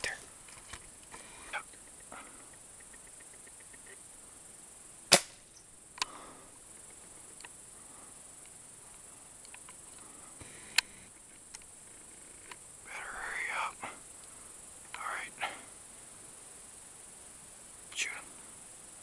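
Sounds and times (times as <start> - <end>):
pellet gun cracks: 5.1 - 5.4.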